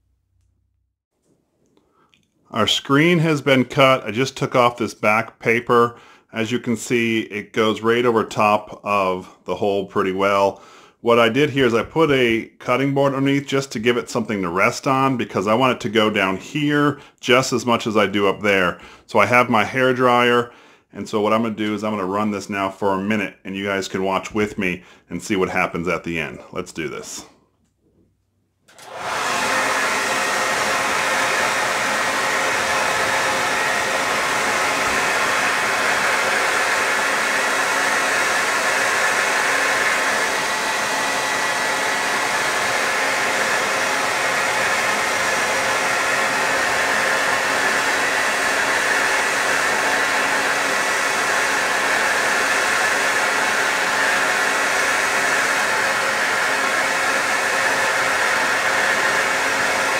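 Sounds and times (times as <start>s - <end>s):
hair dryer blowing: 6.3s - 9.3s, 13.0s - 20.3s, 28.7s - 59.9s
hair dryer switch: 28.7s - 59.9s.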